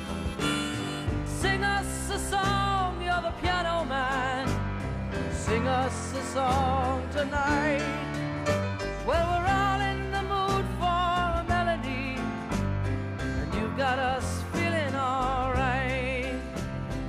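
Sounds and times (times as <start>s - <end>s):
harmonica melody: 0.0s - 2.2s
piano and bass: 0.0s - 17.0s.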